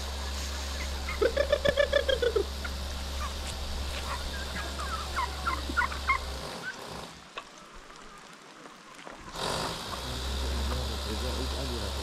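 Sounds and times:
steady low hum: 0.0 - 6.5
chickens clucking: 0.0 - 12.0.

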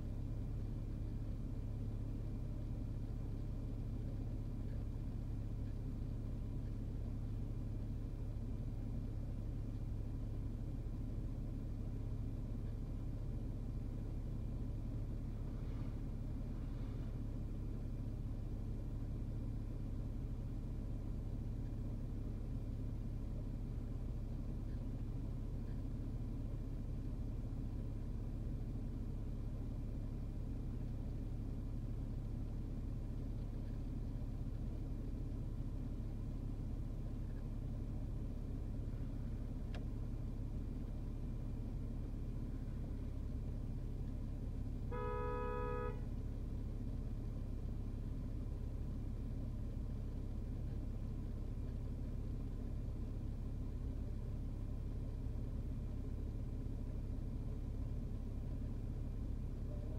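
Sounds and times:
car engine rumble inside cabin: 0.0 - 59.9.

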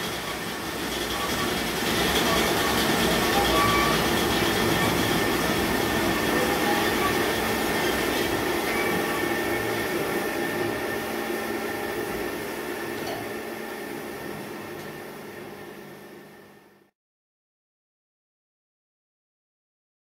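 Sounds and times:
band saw humming: 0.0 - 15.2.

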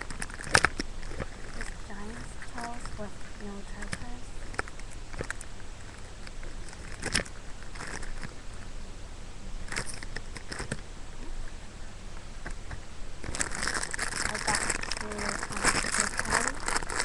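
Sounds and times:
knocks and rustles of handling: 0.0 - 8.7
low steady hum: 0.0 - 17.0.

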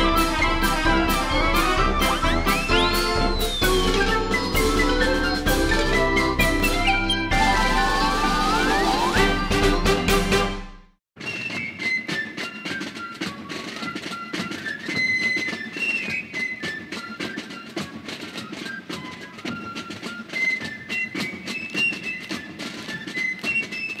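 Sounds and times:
high melody over percussive beat: 0.0 - 10.8.

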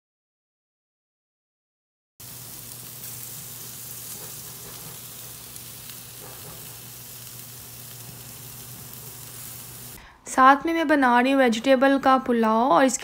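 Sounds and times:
meat sizzling on a grill: 2.2 - 10.0.

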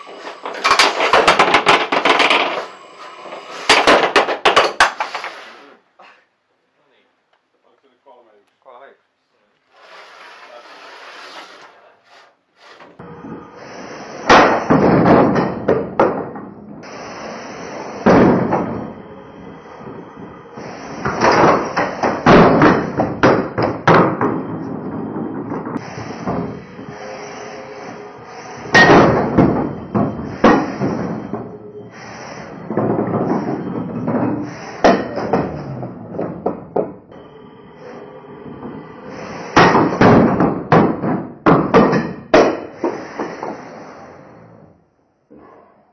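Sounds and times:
robots banging into walls: 0.0 - 5.3, 14.1 - 37.1, 38.5 - 43.7
steady background noise: 0.0 - 45.9
sharp metallic impacts: 13.0 - 35.7.

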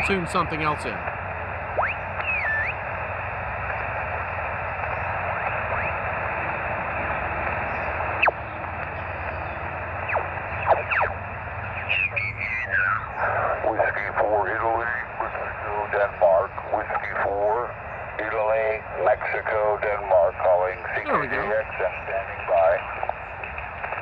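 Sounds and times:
radio voice: 0.0 - 1.1, 11.8 - 23.1
radio band noise hiss: 0.0 - 24.0
sliding radio whistles: 1.8 - 2.8.

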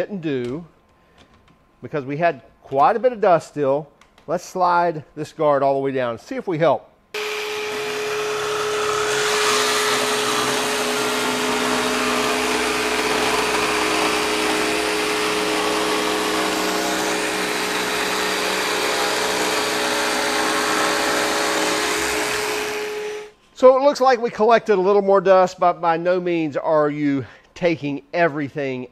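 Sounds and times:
jigsaw cutting plywood: 7.2 - 23.3.

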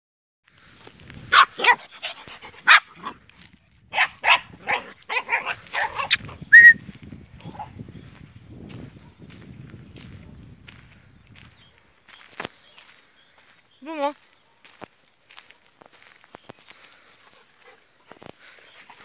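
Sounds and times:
dog barking: 1.3 - 1.8, 2.6 - 3.2, 3.9 - 6.2, 9.0 - 9.2.

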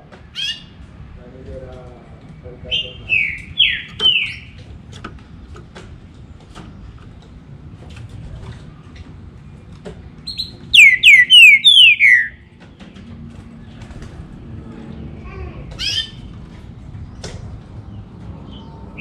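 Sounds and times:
bird whistling falling notes: 10.3 - 12.4.

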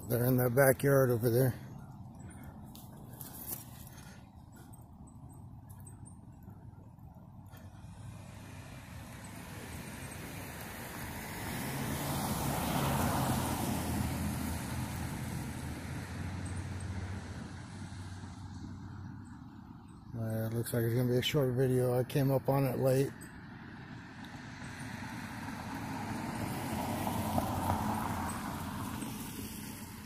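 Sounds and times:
car driving past: 7.6 - 18.6, 24.5 - 30.0.

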